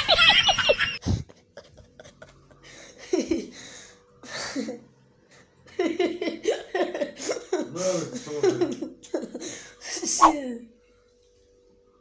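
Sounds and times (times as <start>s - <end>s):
man talking: 7.7s - 8.8s.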